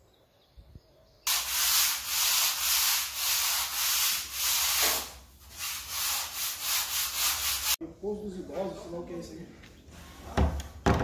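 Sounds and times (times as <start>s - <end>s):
rasping sanding strokes on wall: 1.3s - 7.8s.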